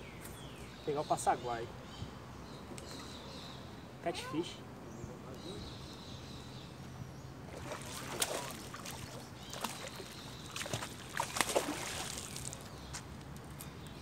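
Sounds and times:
fish splashing and thrashing in water: 7.5s - 12.7s.

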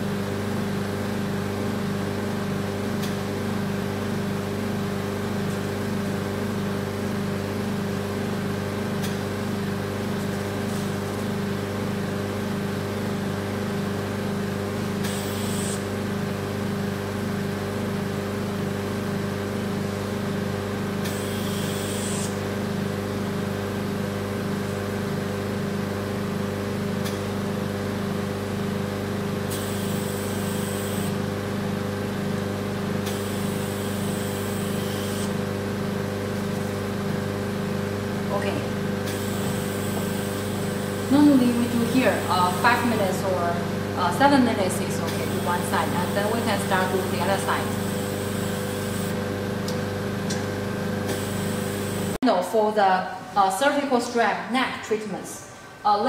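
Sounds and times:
pulsing machine motor hum: 12.4s - 16.5s, 21.0s - 22.8s, 29.3s - 52.2s.

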